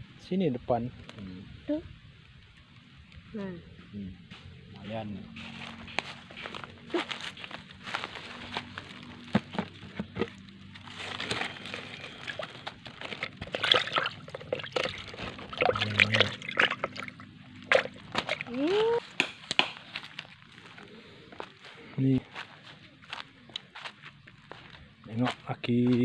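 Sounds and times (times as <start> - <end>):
fish thrashing: 9.6 - 19.0
water splashing in a bucket: 11.1 - 19.0.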